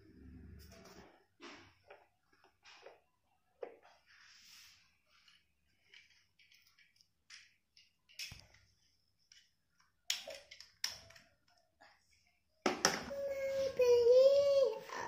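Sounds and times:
plastic toy pieces clicking: 5.8 - 8.7, 10.1 - 11.4.

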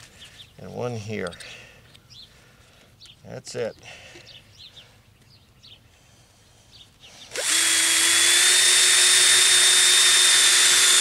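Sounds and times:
cordless drill boring: 7.3 - 11.0.

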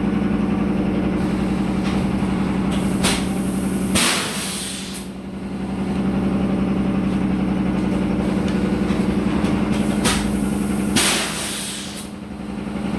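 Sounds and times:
factory machinery humming: 0.0 - 12.9
air hiss bursts: 2.9 - 5.1, 10.0 - 12.1.

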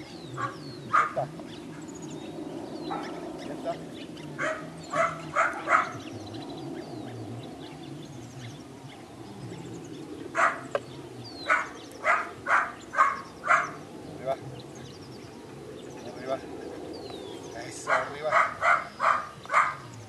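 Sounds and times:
puppy barking: 0.4 - 1.3, 2.9 - 3.2, 4.4 - 6.0, 10.4 - 10.8, 11.4 - 13.8, 17.9 - 19.9.

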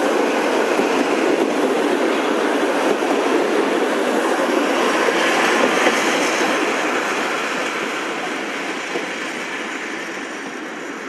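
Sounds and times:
train coaches rolling on track: 0.0 - 11.0.

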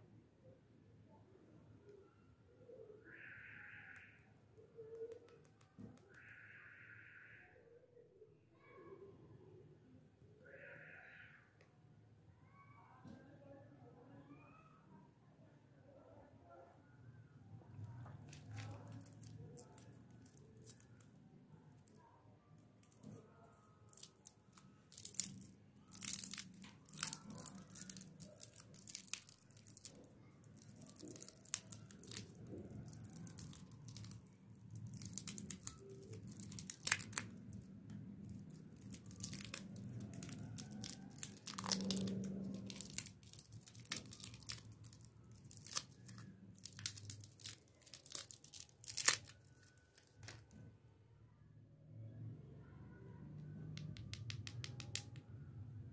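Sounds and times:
plastic wrapper crinkling and tearing: 18.0 - 21.2, 23.9 - 50.6.

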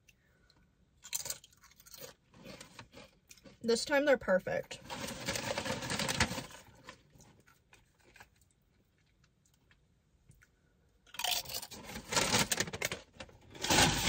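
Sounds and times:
tortilla chips crunching: 1.0 - 3.6, 4.9 - 9.6, 11.1 - 14.0.

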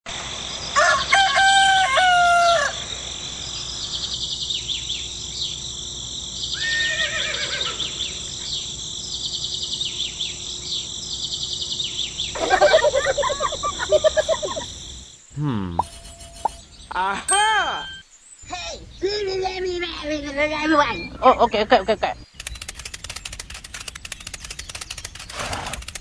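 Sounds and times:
rooster crowing: 0.8 - 2.9
rapid repeated bird calls: 2.4 - 15.2, 18.2 - 26.0
small birds chirping: 2.9 - 26.0.

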